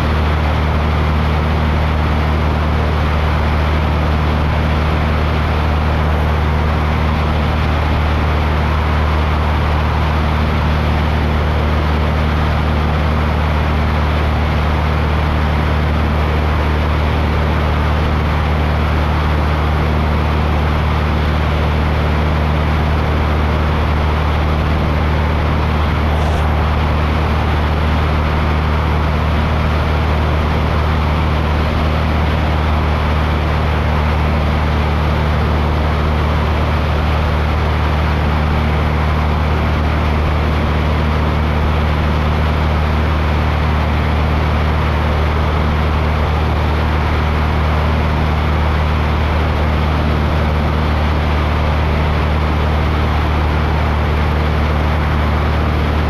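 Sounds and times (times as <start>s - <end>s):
small aircraft engine drone: 0.0s - 56.0s
rushing noise: 22.8s - 38.0s.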